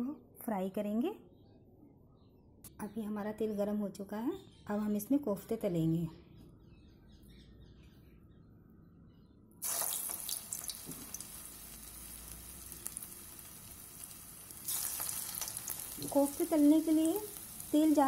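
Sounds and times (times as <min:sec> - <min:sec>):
deep-frying sizzle with crackles: 0:09.6 - 0:18.0.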